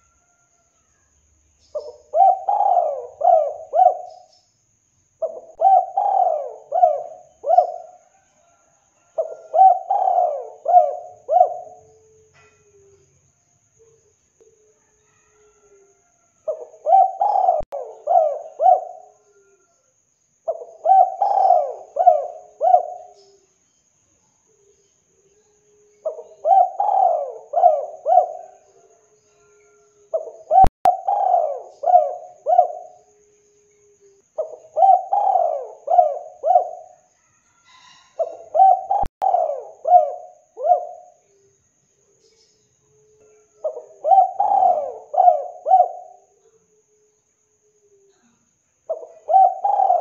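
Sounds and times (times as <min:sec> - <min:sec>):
dove cooing: 0:01.7 - 0:04.3, 0:05.2 - 0:13.0, 0:16.5 - 0:19.7, 0:20.5 - 0:23.4, 0:25.8 - 0:37.0, 0:37.7 - 0:41.5, 0:42.9 - 0:47.1, 0:48.9 - 0:50.0.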